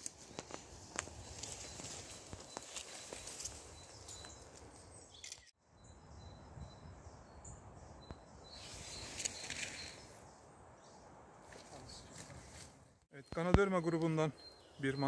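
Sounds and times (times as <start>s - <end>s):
low woodland background noise: 0.0s - 15.0s.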